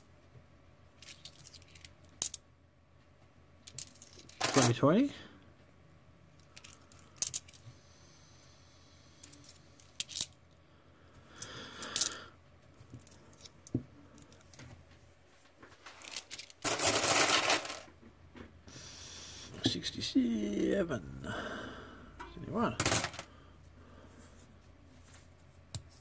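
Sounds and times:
coins clattering: 3.7 - 4.8, 16.0 - 17.9, 22.8 - 23.3
coins clicking together: 16.2 - 17.8, 22.8 - 23.2.

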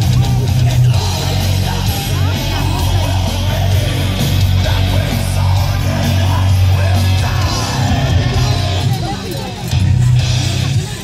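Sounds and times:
heavy metal music: 0.0 - 11.0.

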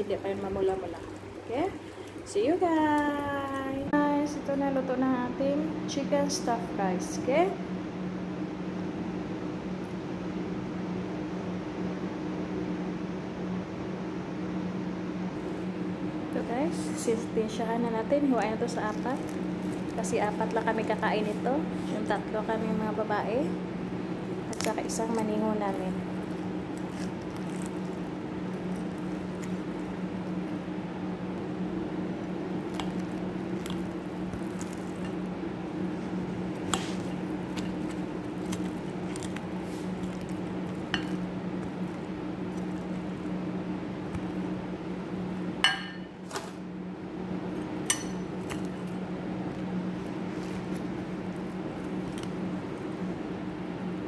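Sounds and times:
steady low hum: 0.0 - 54.0
knife cutting chicken: 36.6 - 41.8
knife clinking against glass: 45.7 - 46.1.

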